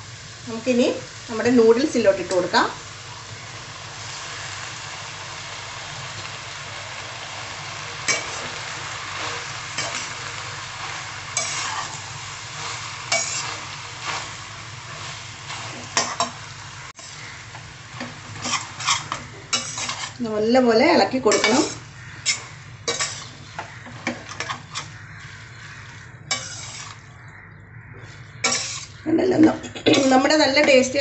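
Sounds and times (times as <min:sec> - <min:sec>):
food sizzling in a pan: 0:00.0 - 0:27.1, 0:28.4 - 0:31.0
utensil scraping and knocking pan: 0:18.4 - 0:20.2, 0:26.3 - 0:27.0, 0:28.4 - 0:28.9.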